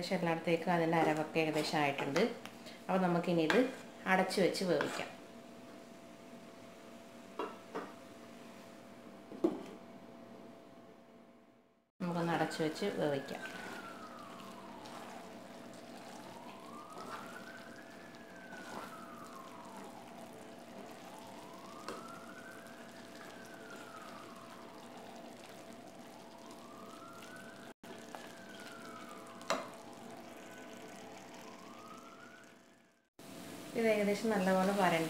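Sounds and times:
siren wailing: 0.0 - 5.2, 12.0 - 33.1.

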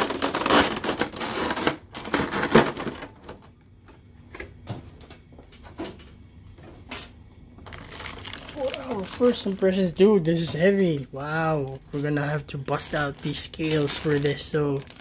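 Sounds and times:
plastic tray crackling: 7.6 - 15.0.

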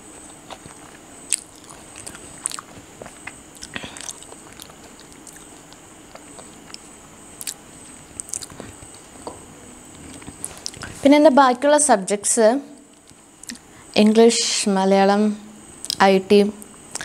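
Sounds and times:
faint high whine: 0.0 - 17.0
person chewing food: 0.2 - 11.0.

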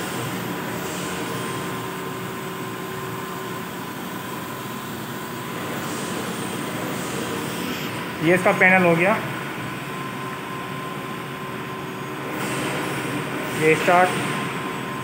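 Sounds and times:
printing machine humming: 0.0 - 15.0.

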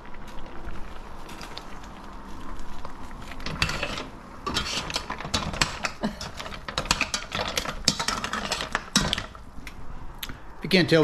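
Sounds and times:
spoon stirring mussel shells: 2.7 - 9.5.

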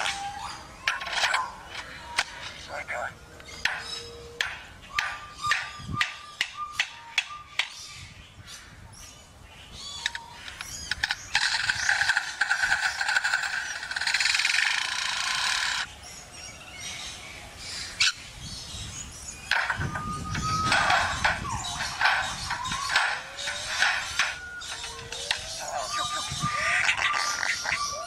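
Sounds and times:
lyrebird gliding whistles: 3.6 - 7.7, 19.5 - 28.0
scattered clicks: 10.0 - 15.9
lyrebird harsh pulsing buzz: 11.0 - 15.9.

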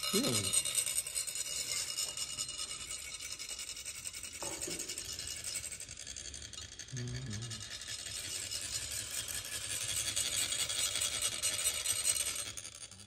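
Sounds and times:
metal funnels rasping: 0.0 - 13.0.

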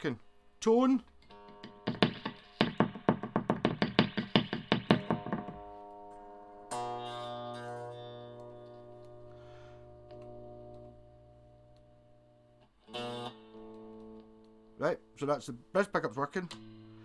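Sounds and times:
electric guitar strings picked: 1.0 - 2.8, 4.9 - 15.5
electric guitar chord ringing: 1.2 - 3.0, 4.9 - 15.2, 16.5 - 17.0.

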